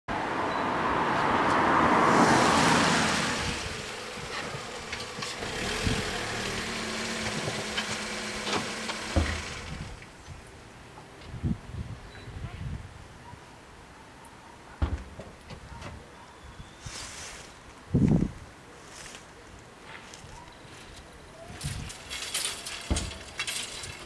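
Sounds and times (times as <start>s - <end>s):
car passing by: 0.1s - 9.9s
car engine idling: 2.5s - 10.2s
thump: 8.5s - 9.8s, 14.8s - 16.0s, 22.8s - 23.3s.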